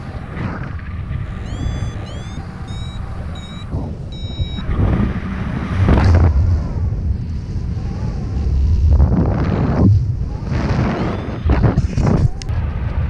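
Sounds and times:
wind buffeting microphone: 0.0s - 13.0s
short electronic beeps: 1.4s - 4.7s.

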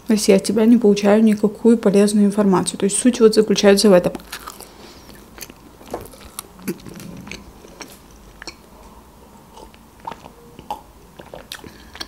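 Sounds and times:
chewing food: 4.2s - 12.0s.

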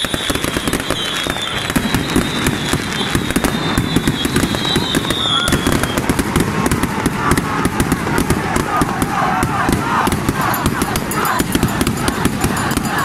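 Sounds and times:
high steady whistle: 0.0s - 6.2s
fireworks and firecrackers banging: 0.0s - 13.0s.

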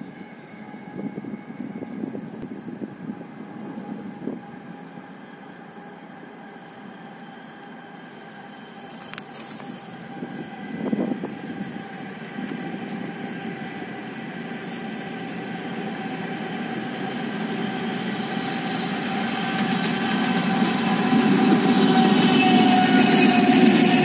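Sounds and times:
diesel locomotive engines running: 0.0s - 24.0s
wheel and rail clatter: 19.4s - 24.0s.

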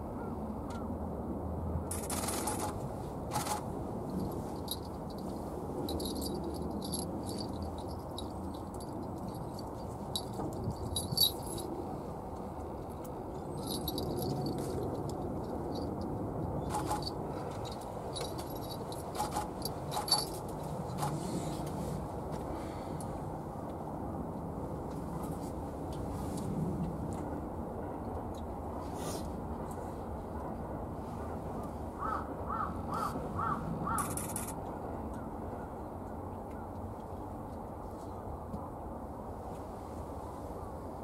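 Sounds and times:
faint high clicks and tinkles: 4.1s - 11.8s, 13.5s - 16.0s.

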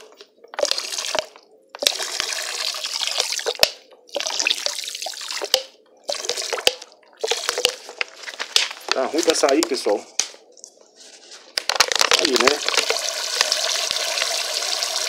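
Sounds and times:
liquid glugging from plastic bottle: 0.2s - 8.2s, 11.8s - 14.3s
liquid splashing into basin: 0.5s - 8.2s, 11.9s - 15.0s.

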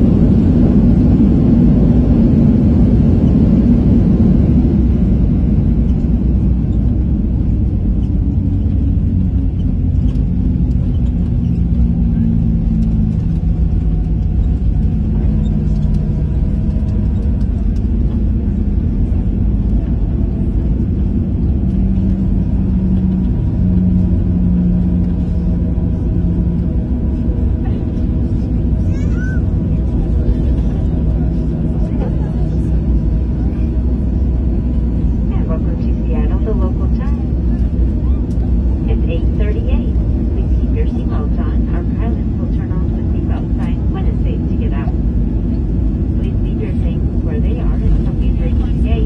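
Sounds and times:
jet engines and wheels rumbling: 0.0s - 49.0s.

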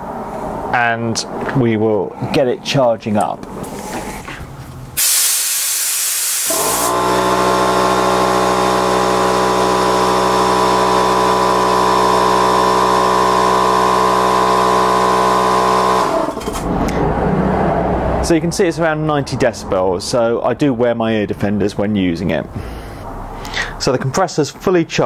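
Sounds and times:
air hiss: 5.0s - 7.0s
air compressor running: 5.0s - 17.1s.

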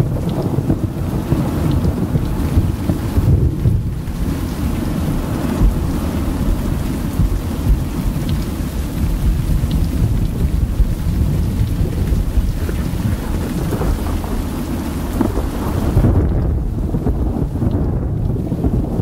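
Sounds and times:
rolling thunder: 0.0s - 19.0s
steady rain: 0.0s - 19.0s.

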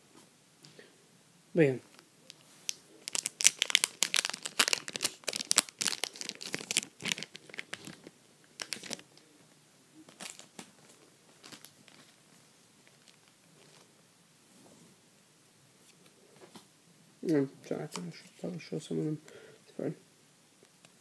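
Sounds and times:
foil wrapper tearing and crinkling: 3.0s - 9.0s.

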